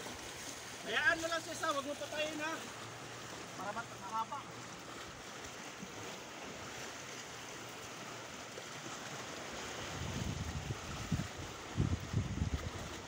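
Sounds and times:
waves splashing over rocks: 0.0 - 13.0
wind buffeting microphone: 9.8 - 13.0.

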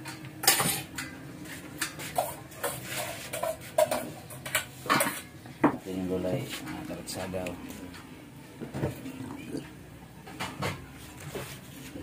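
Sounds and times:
pots and utensils clinking: 0.0 - 1.2, 1.8 - 5.8.

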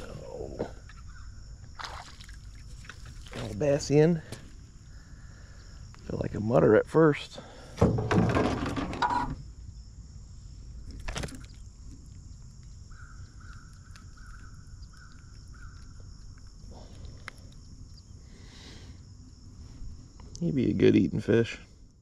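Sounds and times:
bird calling: 0.0 - 1.4, 12.9 - 16.8
insects droning: 0.0 - 22.0.

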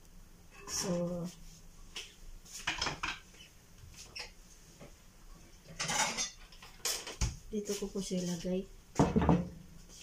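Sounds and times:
kitchen utensils clinking: 5.7 - 7.2.

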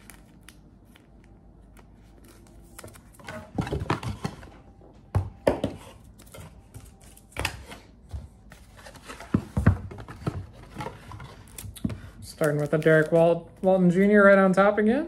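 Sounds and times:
cardboard rustling: 6.0 - 13.4.

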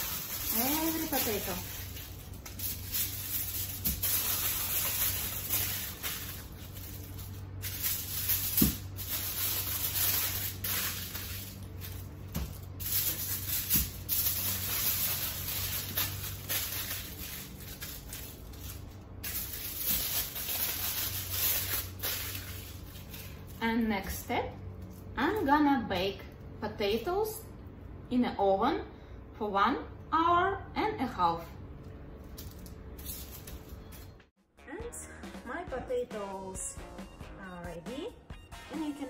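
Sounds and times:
aluminium foil crinkling: 0.0 - 23.6, 32.2 - 34.2.

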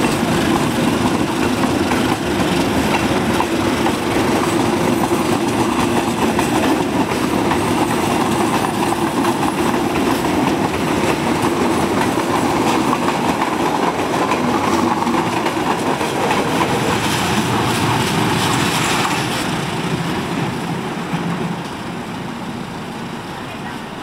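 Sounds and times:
train wheels on rails: 0.0 - 24.0.

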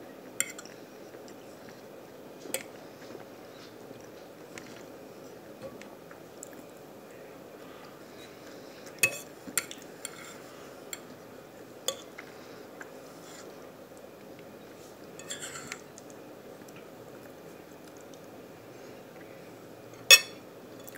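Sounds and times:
fork clinking on a plate: 20.1 - 20.4.

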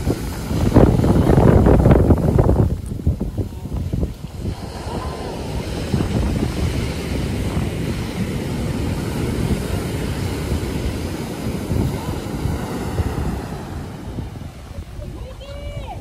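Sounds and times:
waves breaking on a beach: 0.0 - 16.0
wind buffeting microphone: 0.0 - 16.0.

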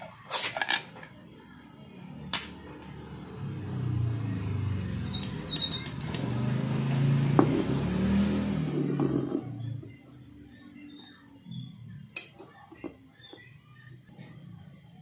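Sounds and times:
vehicle engine running: 2.0 - 10.1.

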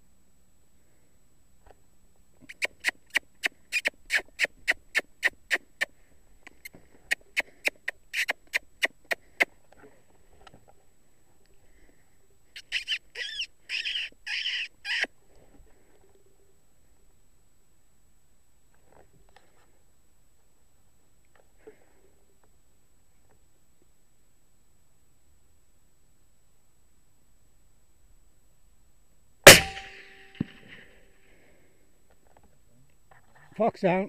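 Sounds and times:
fox call squeaks and squeals: 2.4 - 5.9, 6.6 - 9.0, 12.6 - 15.1.

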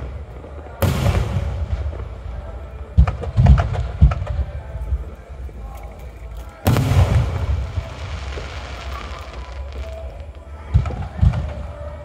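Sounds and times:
firework hiss: 6.7 - 11.8.

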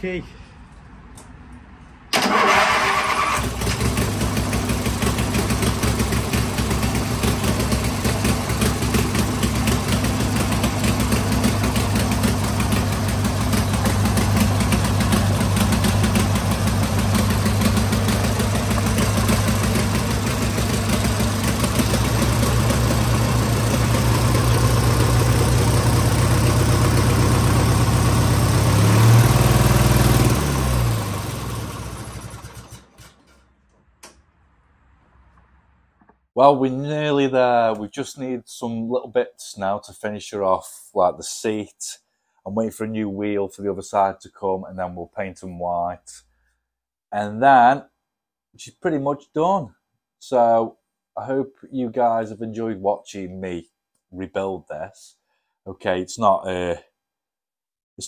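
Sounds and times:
small engine starting and idling: 2.1 - 34.1.

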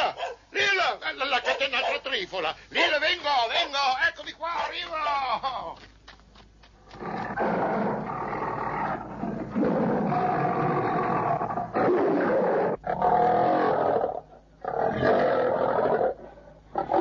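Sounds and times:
leopard roaring and snarling: 6.9 - 17.0.

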